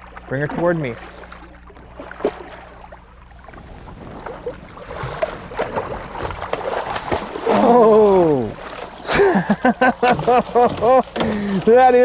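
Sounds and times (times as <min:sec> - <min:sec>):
low hum: 0:00.0 - 0:11.7
water splashing and sloshing: 0:00.0 - 0:12.0
man exclaiming loudly: 0:07.5 - 0:08.6.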